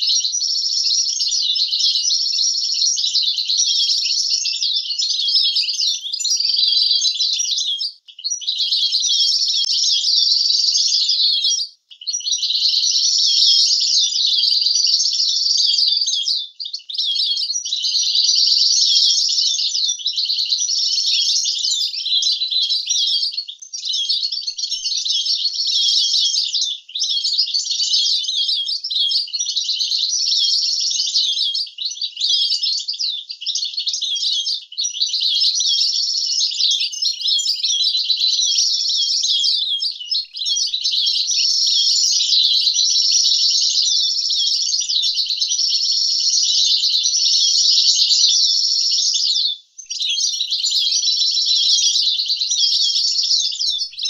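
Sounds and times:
goldfinch twittering song: 0.0s - 31.1s.

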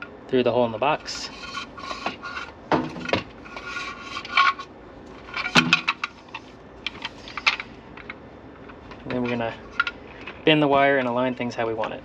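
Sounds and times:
cable scraping against plastic: 1.1s - 7.6s.

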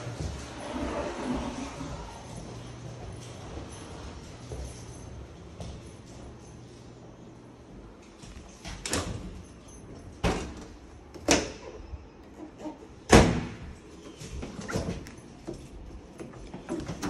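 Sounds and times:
appliance doors clunking shut: 12.5s - 13.8s
door slam: 13.1s - 13.6s.

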